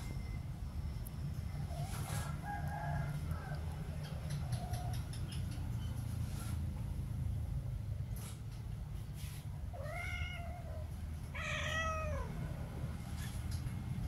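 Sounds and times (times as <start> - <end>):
cat meowing: 9.7 - 12.5.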